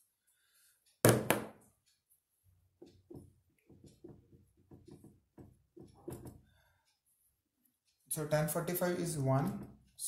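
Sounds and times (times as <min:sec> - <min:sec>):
marker writing on whiteboard: 0:02.8 - 0:06.4.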